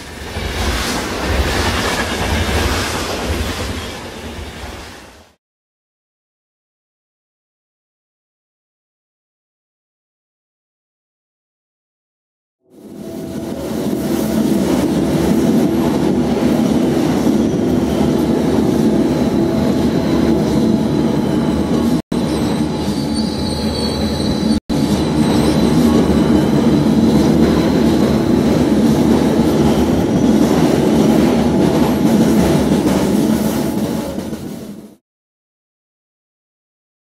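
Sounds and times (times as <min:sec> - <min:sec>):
train rumbling on rails: 0:00.0 - 0:05.4, 0:12.6 - 0:35.0.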